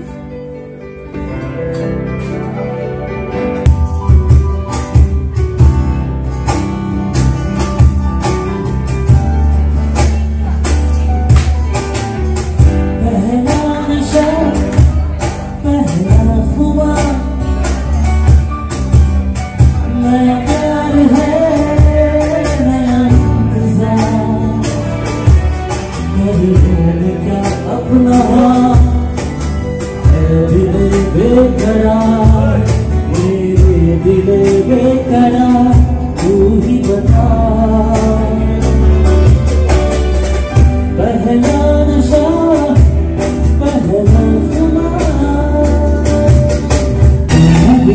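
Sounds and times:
live band with strong bass: 0:00.0 - 0:47.9
man singing: 0:12.6 - 0:39.6, 0:40.5 - 0:47.9.

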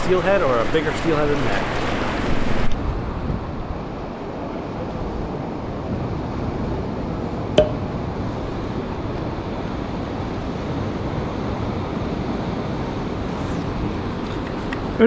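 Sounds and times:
wind: 0:00.0 - 0:15.0
sharp click with short ring: 0:07.6 - 0:07.9.

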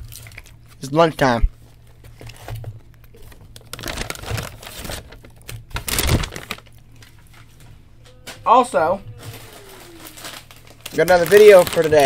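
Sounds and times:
food packaging crinkling: 0:00.0 - 0:00.8, 0:01.7 - 0:07.6, 0:09.1 - 0:12.0.

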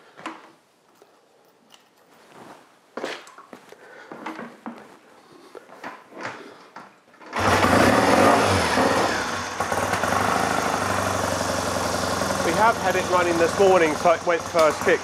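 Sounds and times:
motorcycle engine starting and running: 0:07.2 - 0:15.0.

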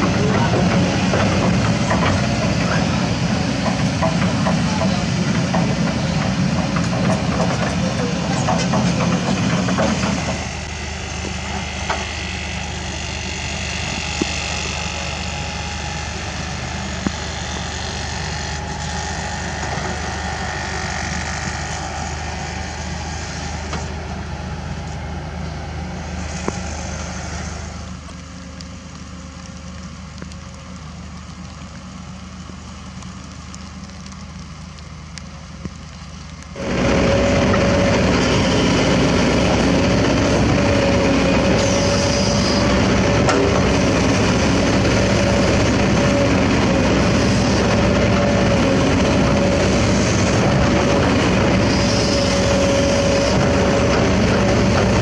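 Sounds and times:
excavator diesel engine clattering: 0:00.0 - 0:25.2, 0:36.6 - 0:55.0.

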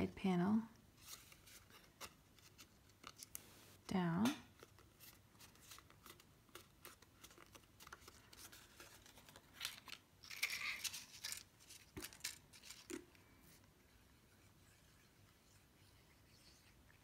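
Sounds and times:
paper rustling: 0:04.6 - 0:13.0.

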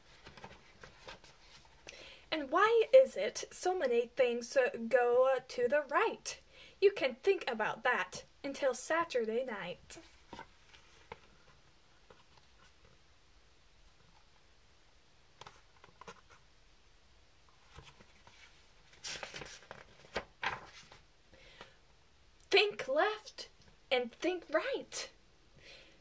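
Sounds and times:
book pages rustling: 0:00.0 - 0:01.8, 0:10.0 - 0:13.0, 0:15.4 - 0:16.5, 0:17.5 - 0:21.8.

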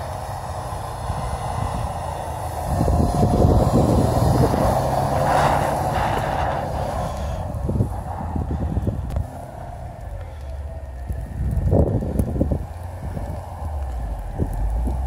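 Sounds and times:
car engine revving hard: 0:00.0 - 0:07.5
wheels spinning spraying snow: 0:00.0 - 0:15.0.

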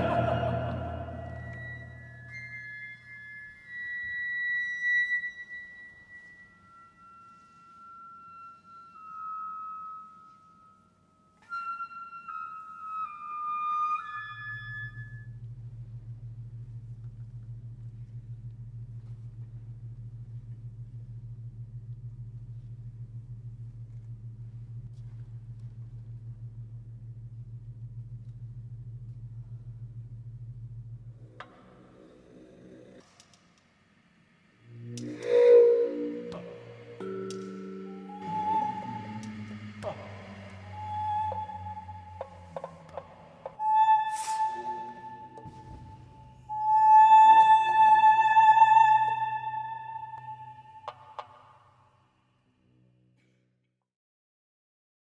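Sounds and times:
low pulsing drone: 0:00.0 - 0:08.1, 0:13.8 - 0:33.1, 0:34.3 - 0:53.4
flute tones sliding downward: 0:00.0 - 0:16.0, 0:34.6 - 0:51.8.

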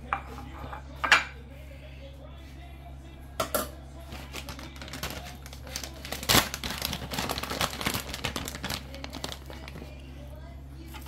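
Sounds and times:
low steady hum: 0:00.0 - 0:11.0
packaging crinkling: 0:04.1 - 0:10.0.

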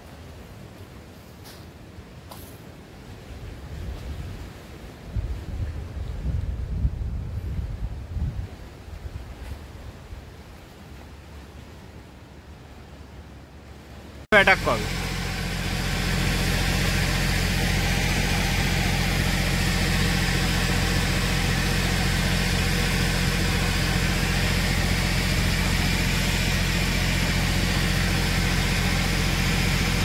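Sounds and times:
engine idling: 0:14.3 - 0:30.0.

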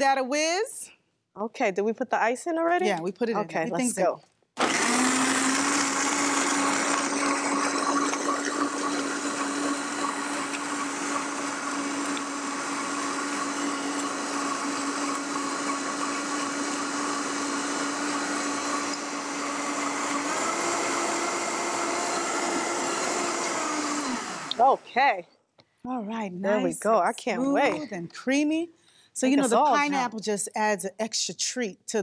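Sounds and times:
blender running: 0:04.6 - 0:24.8.

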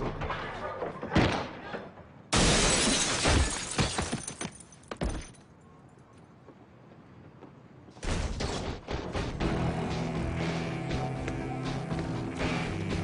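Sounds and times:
glass clattering onto pavement: 0:02.4 - 0:05.4
music: 0:09.2 - 0:13.0.

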